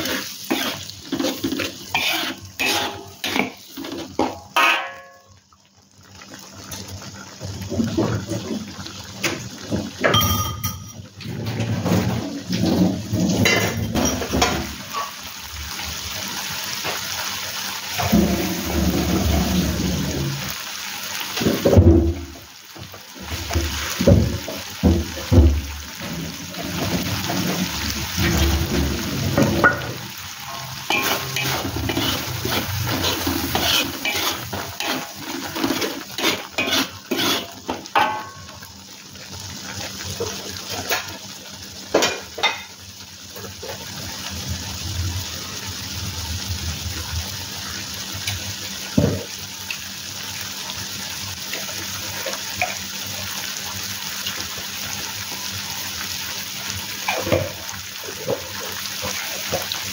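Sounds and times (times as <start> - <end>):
metal spatula scraping a wok: 0.0 - 5.0, 30.4 - 37.7
chilli paste sizzling: 0.0 - 7.5, 14.6 - 59.9.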